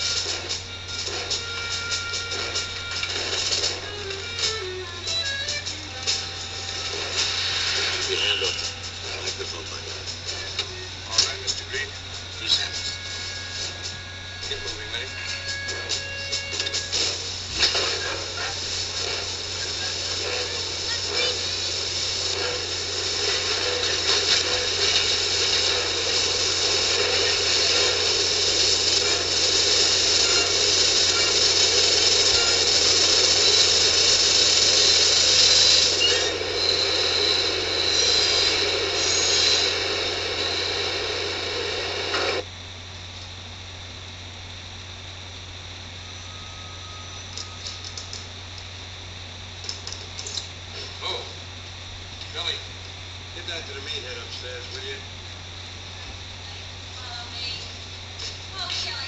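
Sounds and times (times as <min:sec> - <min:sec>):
subway train wheels rattling: 0:00.0 - 0:42.4
high metallic wheel squeal: 0:30.0 - 0:39.8, 0:46.2 - 0:47.9.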